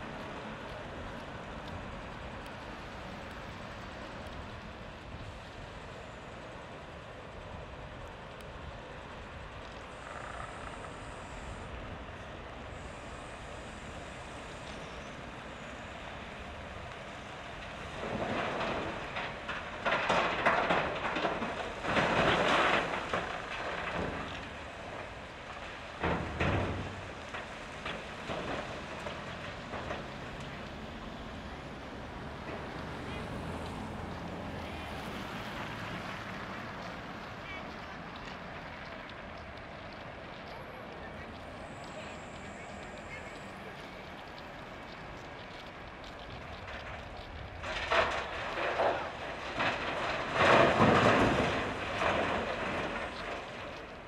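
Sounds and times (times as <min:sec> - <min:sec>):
rock pouring into steel truck bed: 0:47.8 - 0:53.2.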